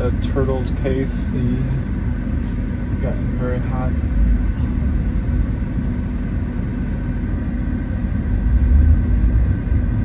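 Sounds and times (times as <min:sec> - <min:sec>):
tyre and road noise: 0:00.0 - 0:10.0.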